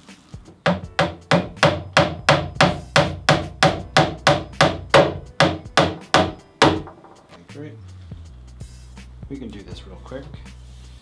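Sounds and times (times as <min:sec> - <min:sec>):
hammer striking a nail: 0:00.6 - 0:07.2.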